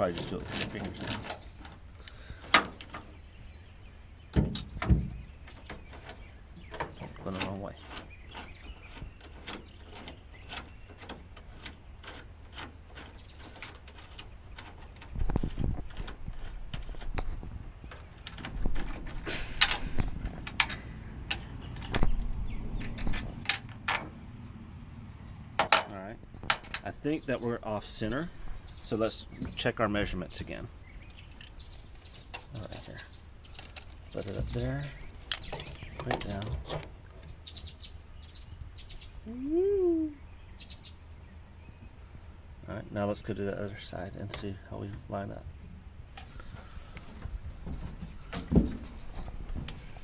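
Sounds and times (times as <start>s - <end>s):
short vocal sound: 39.2s - 40.2s.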